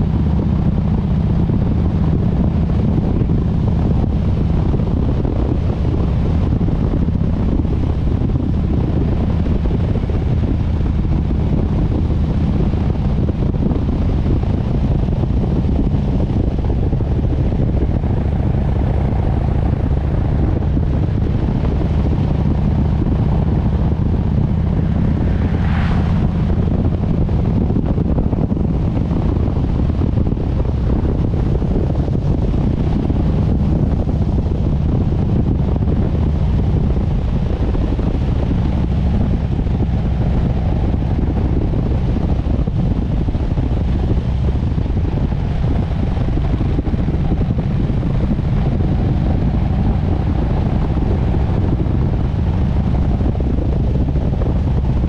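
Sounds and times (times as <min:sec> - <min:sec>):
motorcycle engine cruising: 0:00.0 - 0:55.0
wind noise on microphone: 0:00.0 - 0:55.0.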